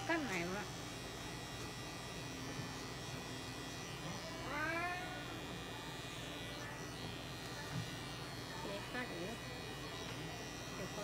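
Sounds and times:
electric clippers humming: 0:00.0 - 0:11.0.

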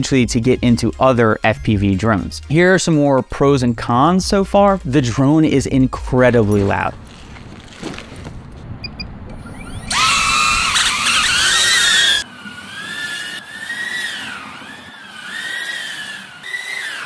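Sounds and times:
drone propellers whining: 0:06.2 - 0:17.0.

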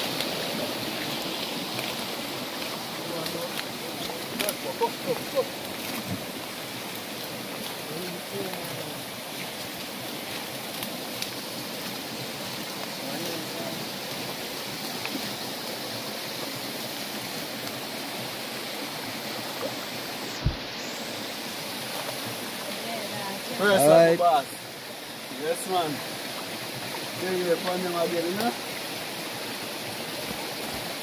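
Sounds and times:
stream water rushing: 0:00.0 - 0:31.0
low thump: 0:20.4 - 0:20.7.

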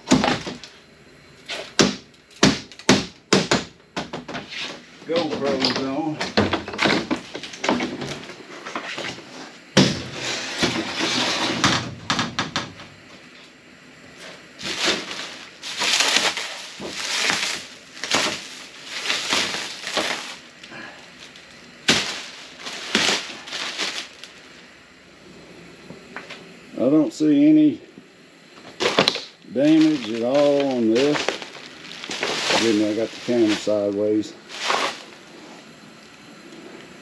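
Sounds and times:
sharp knocks: 0:01.8 - 0:04.4
plastic wrap crinkling: 0:14.2 - 0:24.7, 0:28.8 - 0:35.6.

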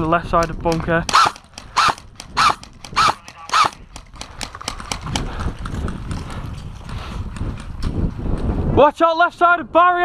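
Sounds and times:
airsoft rifle shots: 0:01.0 - 0:04.9.

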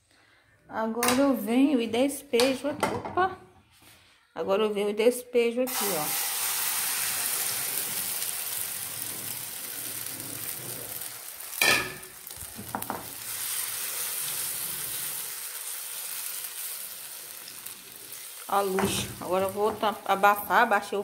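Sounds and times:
eggs sizzling in a frying pan: 0:05.7 - 0:21.0.

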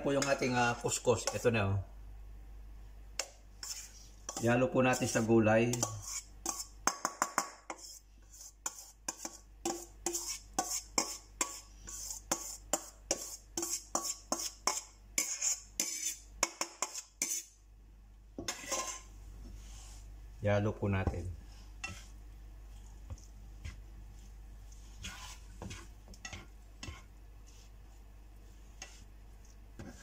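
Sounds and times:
metal bowl clinking and scraping: 0:18.4 - 0:19.1, 0:21.8 - 0:22.1
soft rustle: 0:18.5 - 0:20.2, 0:21.3 - 0:30.0.

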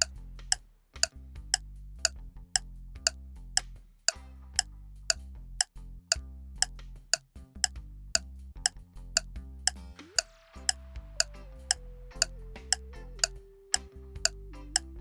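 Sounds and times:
background music with low bass: 0:00.0 - 0:03.6.

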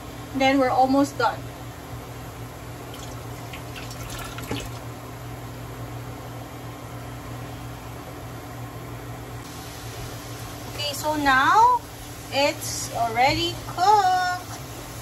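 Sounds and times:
induction cooktop hum: 0:00.0 - 0:15.0
cabbage sizzling in a pan: 0:09.5 - 0:15.0.

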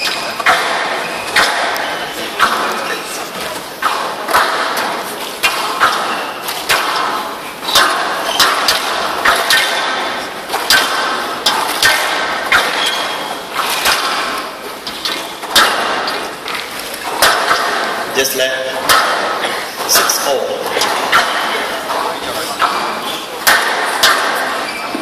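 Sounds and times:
squash ball struck by rackets: 0:00.0 - 0:02.9, 0:03.8 - 0:16.4, 0:17.0 - 0:18.1, 0:18.7 - 0:22.0, 0:22.6 - 0:25.0
ball smacking off walls: 0:03.8 - 0:16.3, 0:17.0 - 0:18.1, 0:18.8 - 0:24.7.

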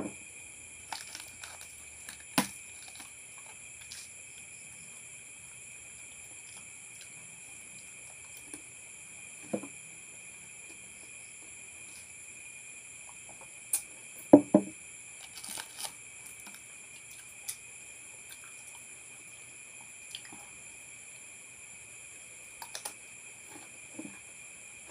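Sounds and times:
crickets chirring: 0:00.0 - 0:24.9
eating noises: 0:00.9 - 0:08.7, 0:15.2 - 0:20.6
knocks on table: 0:09.5 - 0:09.7, 0:14.4 - 0:14.7.

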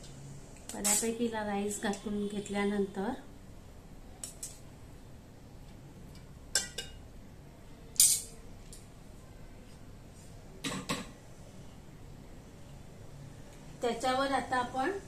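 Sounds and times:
spoon clinking on metal: 0:08.0 - 0:08.4.

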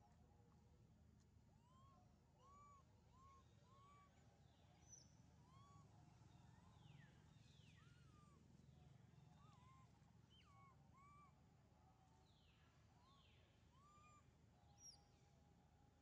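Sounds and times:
low steady background hum: 0:00.0 - 0:16.0
faint animal calls: 0:01.6 - 0:11.6, 0:12.5 - 0:15.0.

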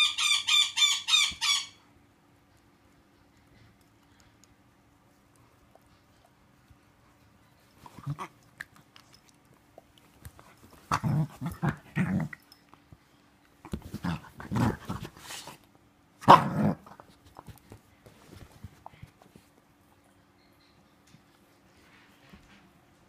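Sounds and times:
dog growling: 0:07.9 - 0:08.5, 0:10.9 - 0:12.4.

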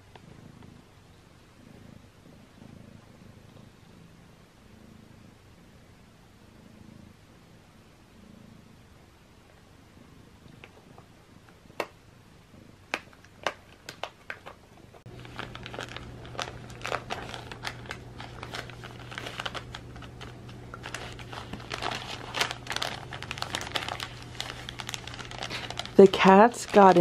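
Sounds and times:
low steady hum: 0:00.0 - 0:27.0
gift package crinkling: 0:13.4 - 0:27.0.

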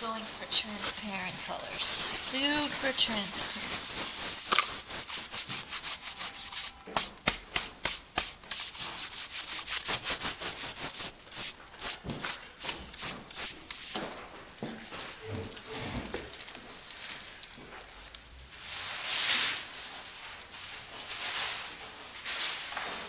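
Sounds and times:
rubbing strokes on paper and wood: 0:00.0 - 0:14.1.

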